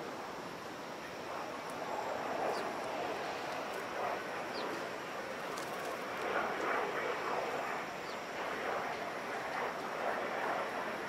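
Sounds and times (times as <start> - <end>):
outdoor background noise: 0.0 - 11.0
sparrows chirping: 2.4 - 2.8, 4.5 - 4.8, 8.0 - 8.3.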